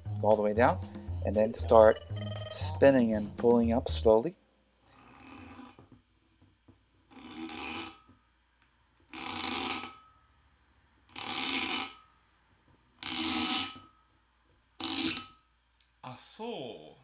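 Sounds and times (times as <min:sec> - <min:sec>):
cork squeaking against glass: 0:01.9 - 0:02.7, 0:04.9 - 0:05.8, 0:07.1 - 0:08.1, 0:09.2 - 0:10.0, 0:11.2 - 0:12.0, 0:13.0 - 0:14.0, 0:14.8 - 0:15.4.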